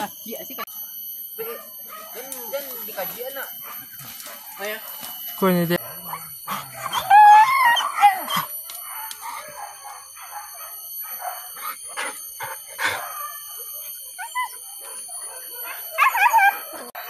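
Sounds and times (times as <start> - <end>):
high-pitched ringing: 0.0 - 17.0
dogs whining and yelping: 3.6 - 17.0.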